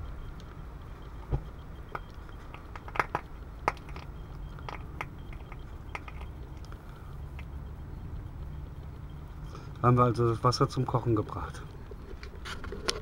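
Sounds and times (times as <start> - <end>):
water boiling with pops and crackles: 1.9 - 7.6.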